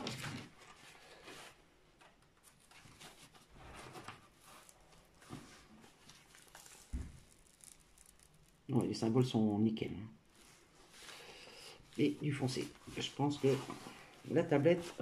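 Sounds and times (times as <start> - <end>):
paper peeling and crinkling: 2.4 - 9.0.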